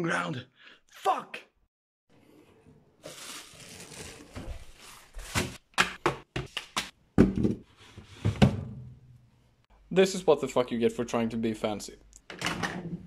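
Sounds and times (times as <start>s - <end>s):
plastic bag crinkling: 3.0s - 5.5s.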